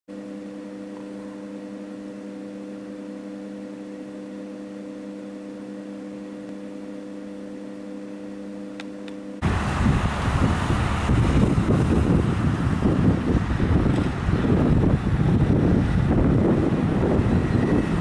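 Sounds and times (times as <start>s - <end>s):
steady low hum: 0.1s - 18.0s
wind buffeting the microphone: 9.4s - 18.0s.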